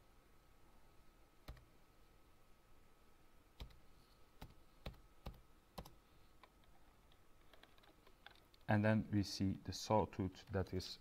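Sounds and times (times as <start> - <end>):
faint keyboard keystrokes: 4.4 - 8.7.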